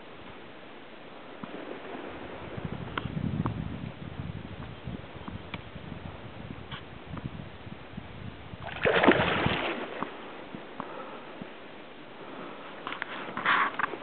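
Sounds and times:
water splash: 8.6 - 10.5.

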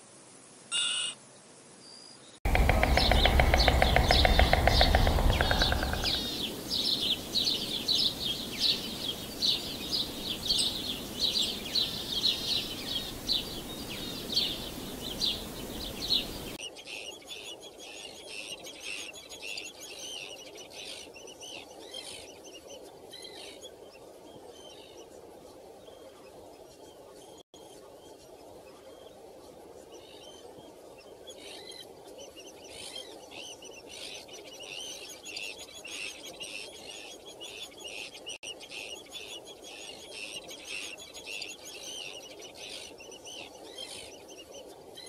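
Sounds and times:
small birds chirping: 1.8 - 45.0
stork clattering bill: 2.5 - 7.2
high bird calls: 2.5 - 17.1.

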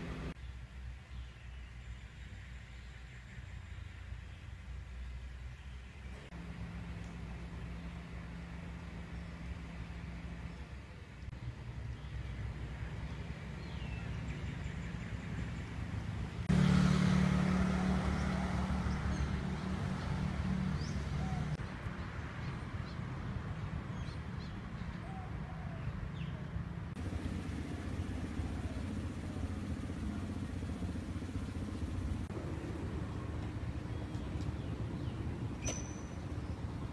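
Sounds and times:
distant traffic rumble: 0.0 - 1.1, 2.2 - 36.9
loud rumble: 27.0 - 35.5
faint bird chirps: 35.6 - 36.5.

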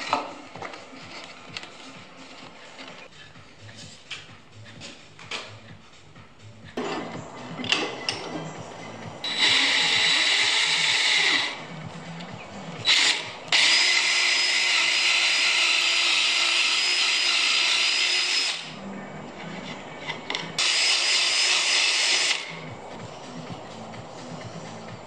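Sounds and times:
cordless drill drilling wood: 9.2 - 11.6, 12.9 - 18.8, 20.6 - 22.5.

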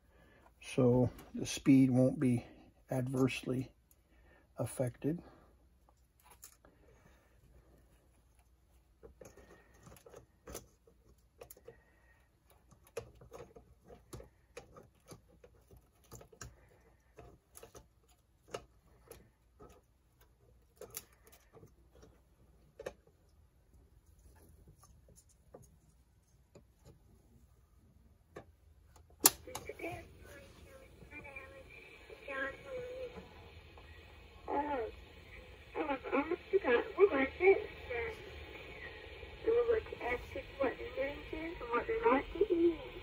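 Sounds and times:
low steady hum: 0.0 - 43.0
irregular clicks and taps: 8.3 - 23.4.

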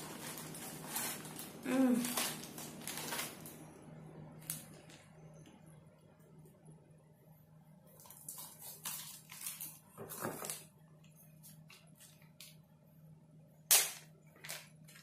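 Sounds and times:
plastic packaging crinkling: 0.0 - 3.6, 8.0 - 10.7.

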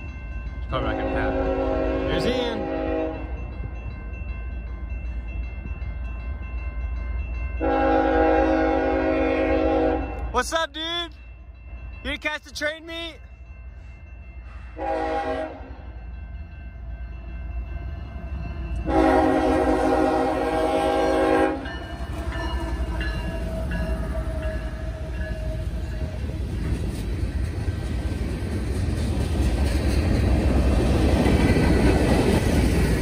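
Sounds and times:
train rumbling past: 0.0 - 33.0
locomotive horn blasts: 0.8 - 3.3, 7.6 - 10.3, 14.8 - 15.9, 18.8 - 21.8.

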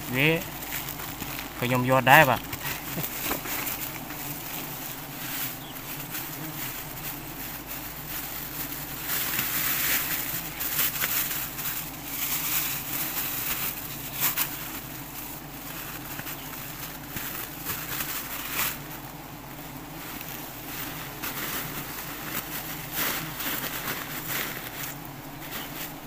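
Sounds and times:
bees buzzing: 0.0 - 26.0
rustling grass and leaves: 0.0 - 26.0
handling crackles: 0.1 - 26.0.

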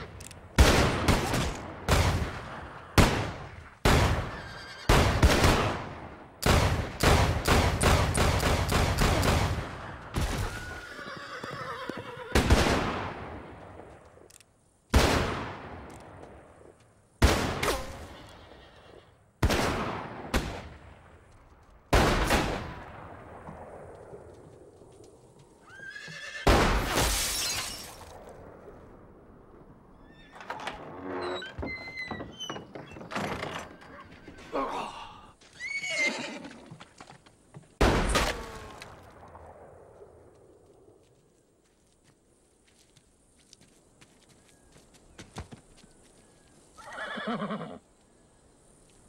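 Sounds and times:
echoing gunshots: 0.5 - 4.3, 4.9 - 10.4, 12.4 - 13.9, 14.9 - 16.6, 17.2 - 18.0, 19.4 - 21.3, 21.9 - 24.3
horse whinnying: 4.3 - 4.9, 10.4 - 12.4, 25.6 - 26.5, 35.5 - 36.7, 46.8 - 47.8.

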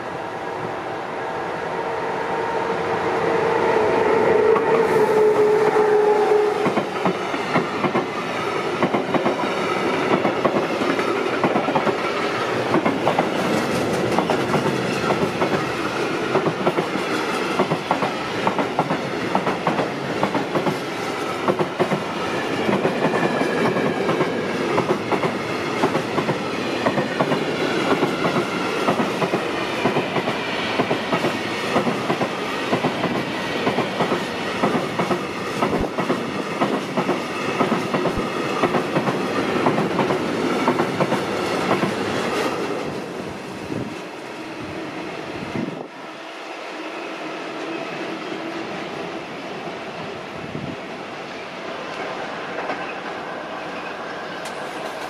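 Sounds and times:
train wheels clattering over rail joints: 8.8 - 42.7.

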